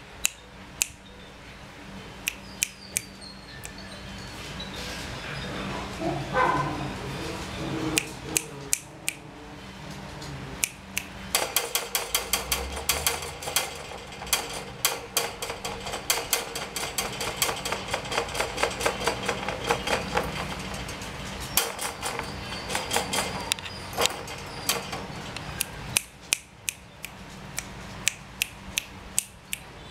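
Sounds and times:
puppy rattling wire cage: 11.4s - 25.8s.

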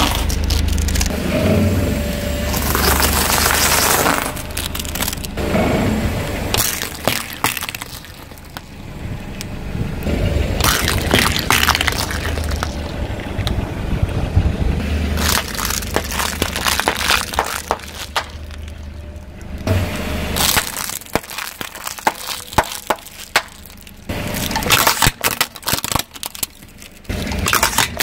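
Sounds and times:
tyre crushing small objects: 0.0s - 1.1s, 2.5s - 5.4s, 6.5s - 8.7s, 10.6s - 13.6s, 15.1s - 19.7s, 20.3s - 28.0s
low rumble: 0.0s - 22.0s.

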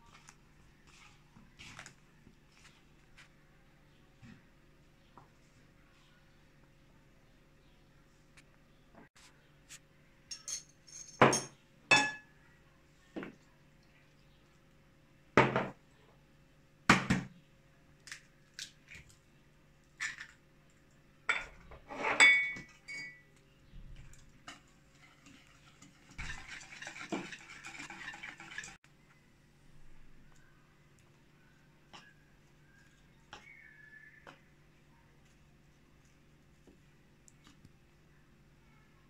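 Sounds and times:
utensils clinking on ceramic bowl: 10.3s - 12.3s, 21.3s - 23.3s
fork whisking batter: 24.1s - 28.8s.

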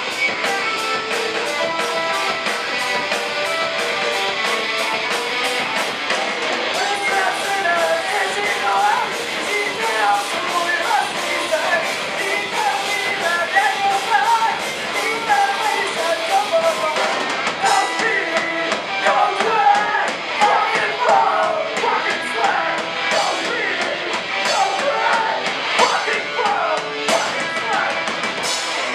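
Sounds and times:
punk band playing live: 0.0s - 28.9s.

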